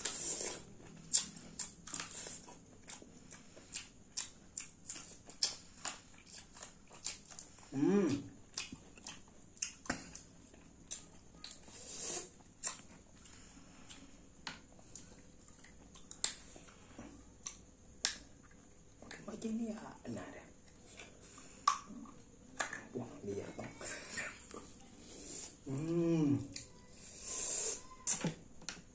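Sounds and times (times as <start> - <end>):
wet chewing and biting: 0.0 - 7.6, 8.5 - 11.7
short vocal sound: 25.3 - 26.5.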